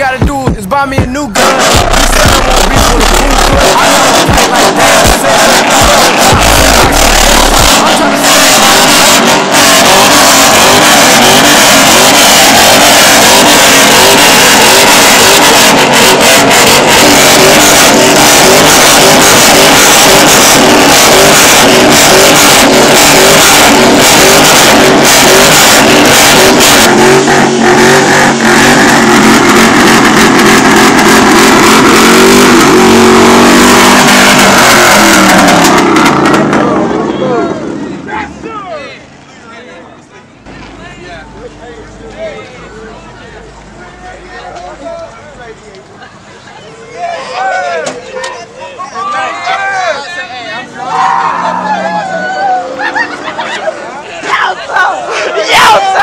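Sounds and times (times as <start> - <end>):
car engine revving hard: 0.0 - 37.8.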